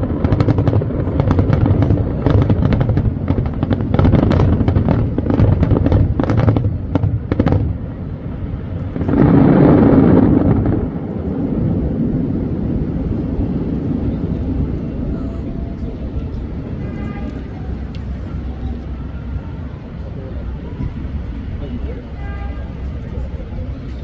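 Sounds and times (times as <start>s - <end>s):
fireworks crackling pops: 0.0s - 12.0s, 16.0s - 19.0s
fireworks low booms: 0.0s - 19.4s
loud wash of noise: 0.0s - 24.0s.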